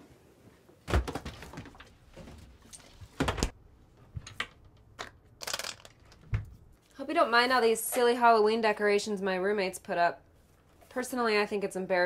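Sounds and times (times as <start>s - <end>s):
refrigerator and cabinet doors: 0.8s - 5.0s.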